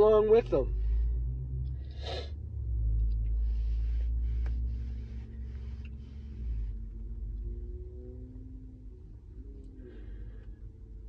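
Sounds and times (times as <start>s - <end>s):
steady low rumble: 0.0s - 11.0s
sharp sniff: 1.9s - 2.3s.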